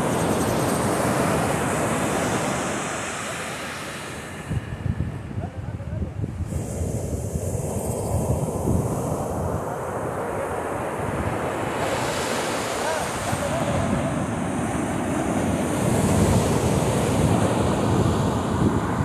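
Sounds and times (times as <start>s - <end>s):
ocean surf breaking: 0.0s - 5.4s, 6.4s - 19.0s
wind on microphone: 3.9s - 19.0s.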